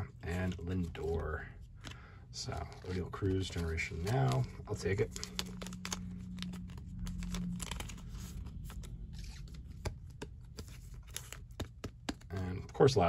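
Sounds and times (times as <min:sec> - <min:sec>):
plastic sleeve crinkling: 0:00.2 - 0:12.9
card clicks and taps: 0:09.2 - 0:12.4.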